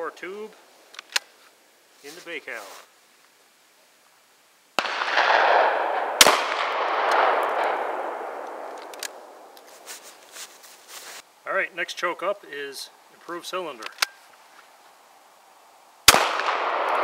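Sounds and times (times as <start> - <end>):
shotgun shot echoing: 4.8 - 9.4, 16.1 - 17.0
sharp crack: 4.8 - 10.2, 16.1 - 17.0.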